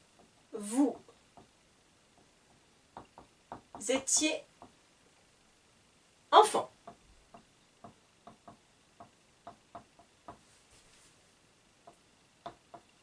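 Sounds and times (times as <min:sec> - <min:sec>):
marker tapping on whiteboard: 0:02.2 - 0:04.8, 0:06.8 - 0:10.5, 0:11.8 - 0:12.9.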